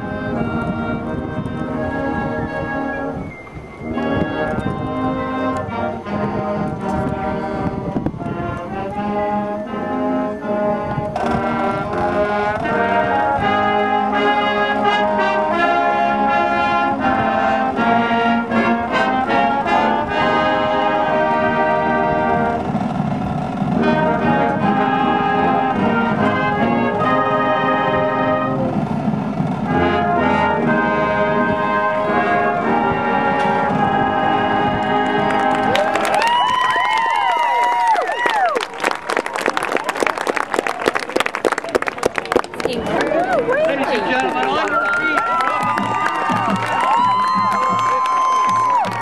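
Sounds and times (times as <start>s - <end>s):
saxophones: 0.0s - 36.2s
brass horns sustained chords: 0.0s - 36.4s
marching drums: 20.2s - 35.8s, 45.2s - 49.0s.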